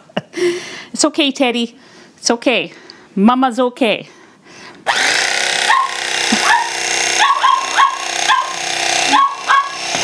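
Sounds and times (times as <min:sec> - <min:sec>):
electric knife motor whine: 0:04.8 - 0:10.0
dog barking: 0:05.7 - 0:09.8.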